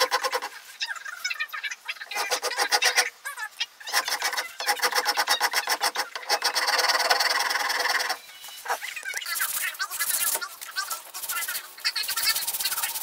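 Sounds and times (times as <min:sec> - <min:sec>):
rasp scraping wood: 0:00.0 - 0:00.6, 0:02.0 - 0:03.1, 0:03.9 - 0:08.8.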